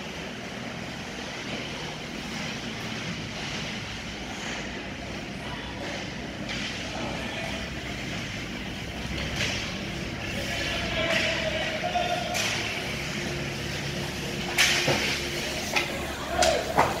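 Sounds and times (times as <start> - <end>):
skates on ice: 0.0 - 17.0
faint voices: 4.2 - 17.0.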